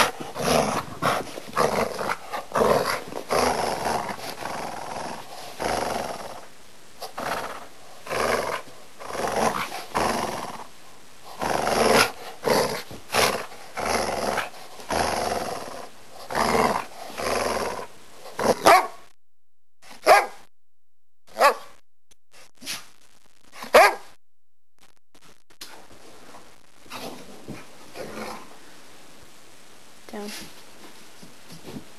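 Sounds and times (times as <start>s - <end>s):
dog growling and barking: 0.0s - 10.7s, 11.3s - 19.1s, 27.9s - 28.6s.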